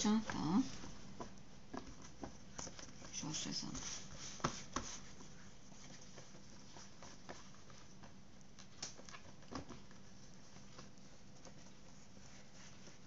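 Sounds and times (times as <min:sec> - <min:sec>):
hands patting pizza dough: 0:00.0 - 0:10.0.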